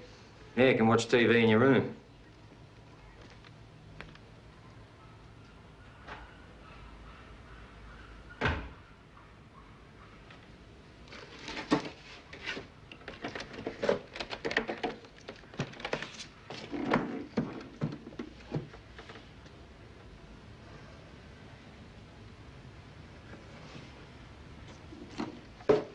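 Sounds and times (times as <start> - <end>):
clunks scrapes and rustles: 11.1 - 19.4.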